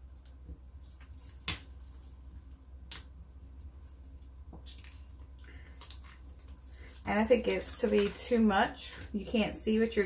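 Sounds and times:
vinyl scraps crinkling: 3.7 - 9.8.

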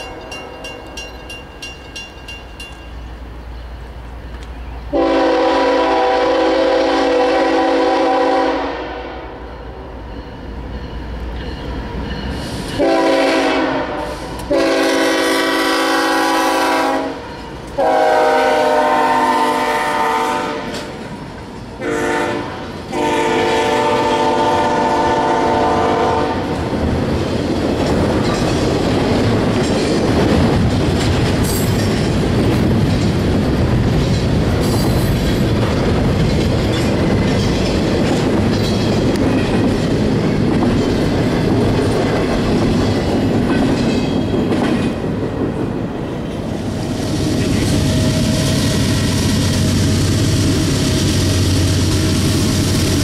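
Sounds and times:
locomotive air horn blasts: 4.9 - 9.4, 12.8 - 17.2, 17.8 - 20.9, 21.8 - 26.5
train wheels clattering over rail joints: 26.5 - 46.5.

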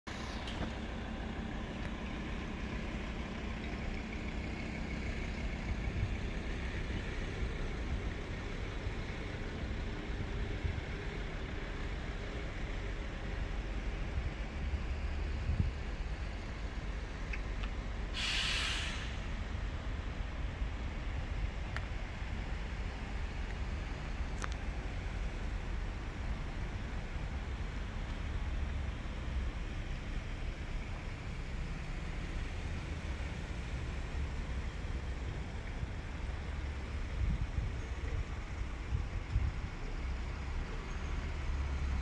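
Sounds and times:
cars driving slowly past: 0.1 - 42.0
loud hiss: 18.1 - 19.4.

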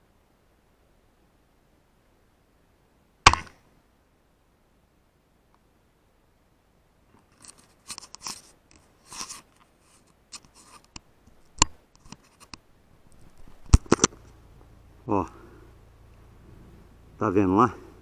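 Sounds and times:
rustles and crunches: 7.1 - 14.7.

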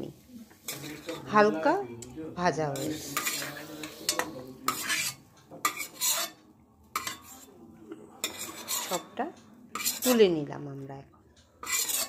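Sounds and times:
metal spoon scraping pan: 0.6 - 7.6, 8.2 - 10.4, 11.6 - 12.0.

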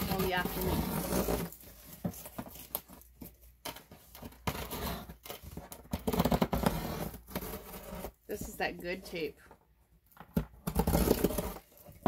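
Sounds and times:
packing tape tearing: 10.6 - 12.0.

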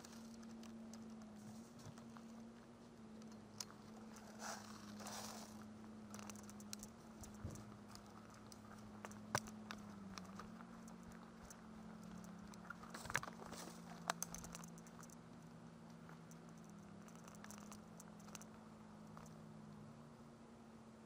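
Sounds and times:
steady low hum: 0.0 - 21.0
clothing and gear rustling: 3.7 - 15.2
sharp ticks: 6.0 - 19.4.

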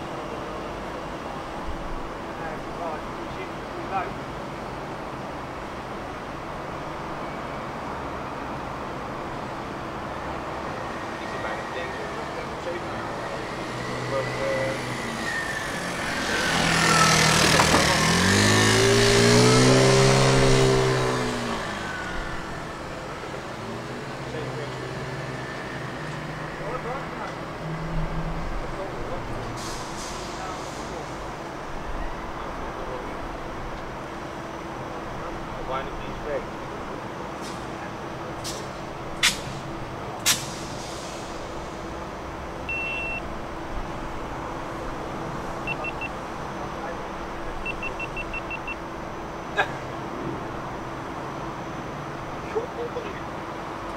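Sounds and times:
motor vehicle passing by: 11.2 - 29.5
compressed air hisses: 40.3 - 41.6
short beep: 42.7 - 43.3, 45.6 - 46.2, 47.6 - 48.8.

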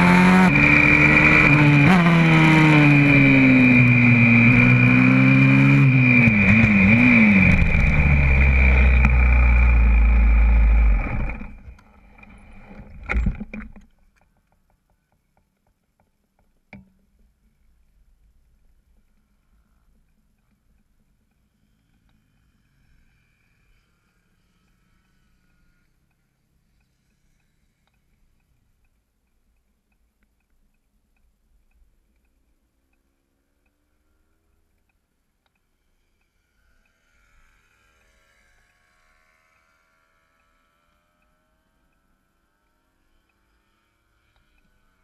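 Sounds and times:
motorbike engine running: 0.0 - 12.0.

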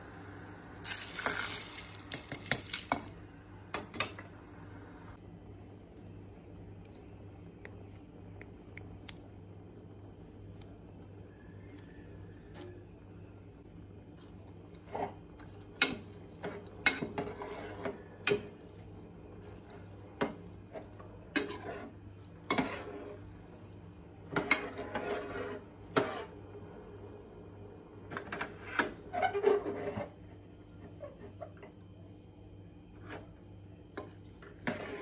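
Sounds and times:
spoon scraping a pot: 14.7 - 18.5, 19.4 - 23.3, 24.3 - 26.4, 28.3 - 30.2, 34.4 - 35.0.

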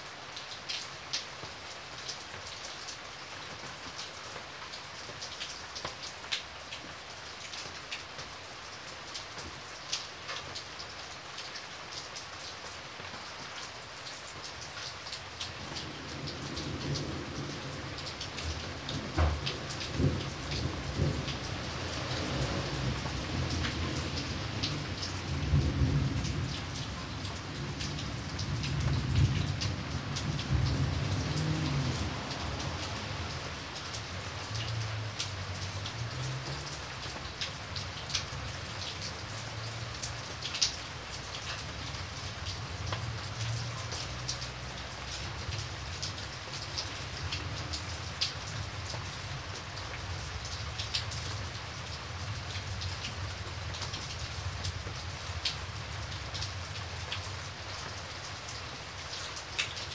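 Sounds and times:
heavy rain: 0.0 - 59.9
sharp raindrop ticks: 14.4 - 59.9
low thunder rumble: 15.9 - 33.3.

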